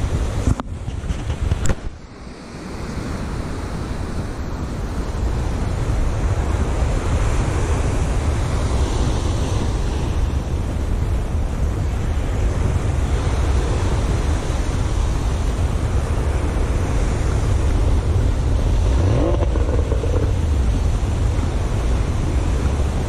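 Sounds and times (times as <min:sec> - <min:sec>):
wind rumbling on microphone: 0:00.0 - 0:23.0
surf breaking: 0:18.6 - 0:21.5.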